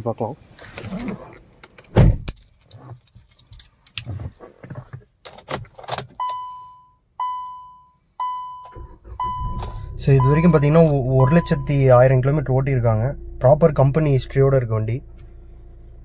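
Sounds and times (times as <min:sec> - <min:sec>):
car keys jangling in ignition: 0:00.9 - 0:04.5
thump: 0:02.0 - 0:02.3
dashboard warning chime: 0:06.2 - 0:14.6.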